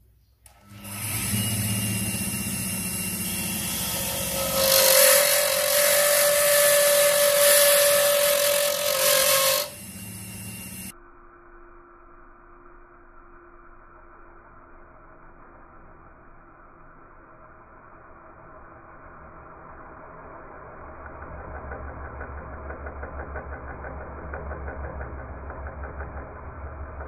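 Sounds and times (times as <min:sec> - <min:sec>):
turning tool cutting wood: 0:00.5 - 0:10.9
wood lathe running: 0:00.5 - 0:10.9.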